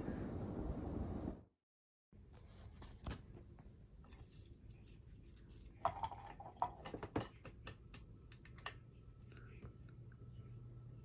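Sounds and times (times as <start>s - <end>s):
faint motor hum: 3.2s - 11.0s.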